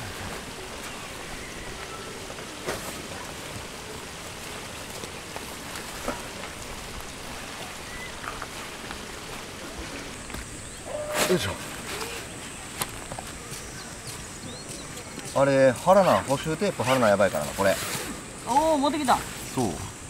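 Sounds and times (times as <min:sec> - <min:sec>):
outdoor background hiss: 0:00.0 - 0:20.0
light knocks of camping gear: 0:02.3 - 0:03.1, 0:04.9 - 0:06.7, 0:11.2 - 0:15.4.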